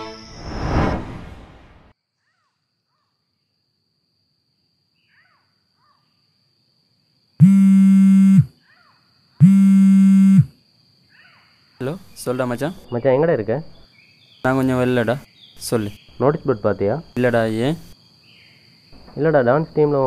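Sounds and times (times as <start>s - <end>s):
faint bird chirps: 2.1s - 3.6s, 4.9s - 6.4s, 8.5s - 9.5s, 11.0s - 16.4s
high insect whine: 3.4s - 20.0s
mobile phone vibrating: 7.4s - 8.5s, 9.4s - 10.5s.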